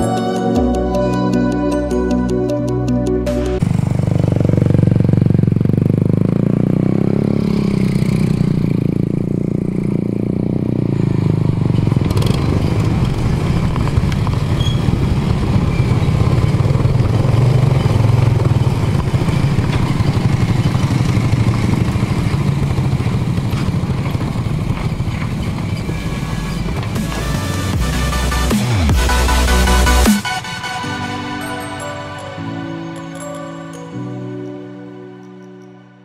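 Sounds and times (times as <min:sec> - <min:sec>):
motorcycle engine running: 0:02.8 - 0:30.2.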